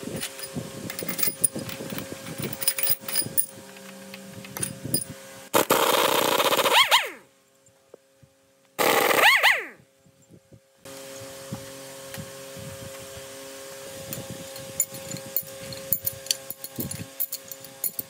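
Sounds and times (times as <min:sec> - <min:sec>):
metal tools clattering: 0:00.2 - 0:03.5, 0:14.8 - 0:18.0
power tool spinning and winding down: 0:00.3 - 0:07.2, 0:08.8 - 0:09.8.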